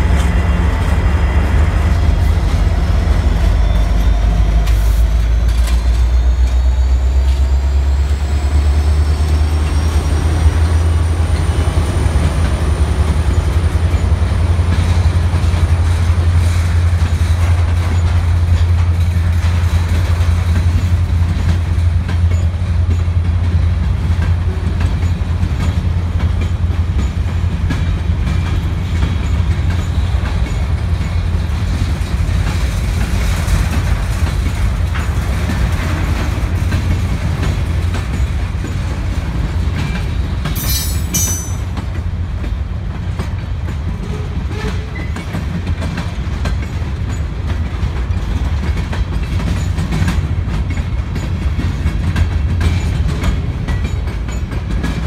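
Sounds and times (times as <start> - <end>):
freight train rumbling past: 0.0 - 55.0
high-pitched squeal: 1.2 - 11.3
wheels clicking over rail joints: 3.4 - 55.0.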